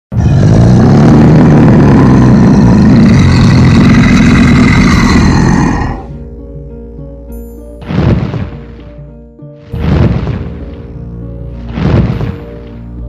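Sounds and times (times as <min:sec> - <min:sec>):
loud rough rumbling: 0:00.1 - 0:06.1
music with held notes: 0:06.1 - 0:13.0.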